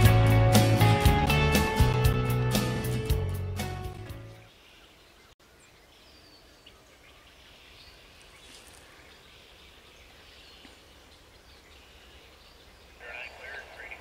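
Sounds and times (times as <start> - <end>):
low outdoor background hush: 4.5 - 14.0.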